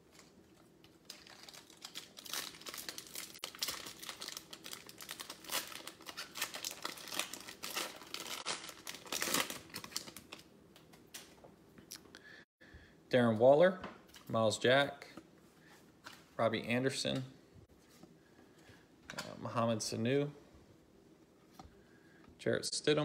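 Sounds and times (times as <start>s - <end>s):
foil wrapper crinkling: 0.0s - 10.5s.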